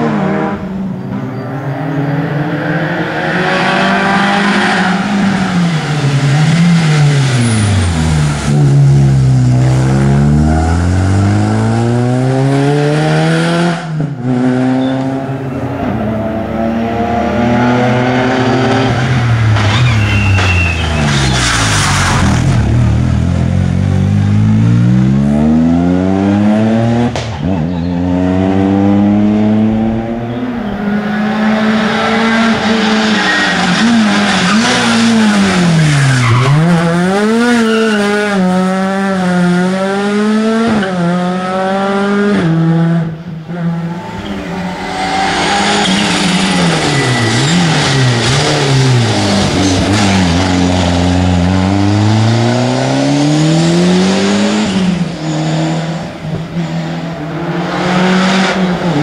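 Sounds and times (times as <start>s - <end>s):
rally car engines revving: 0.0s - 59.0s
tyres squealing: 18.6s - 22.2s, 43.9s - 50.4s.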